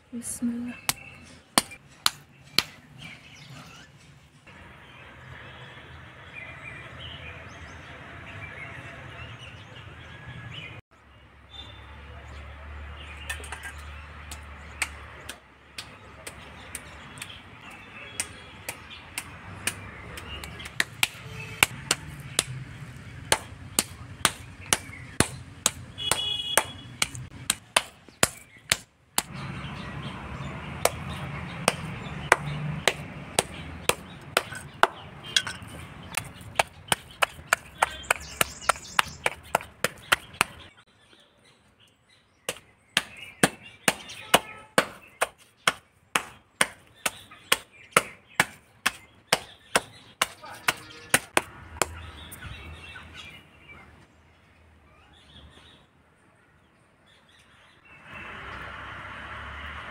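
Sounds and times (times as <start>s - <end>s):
wooden mallet pounding meat on stone: 18.2s - 29.3s, 30.8s - 40.7s, 42.5s - 52.0s.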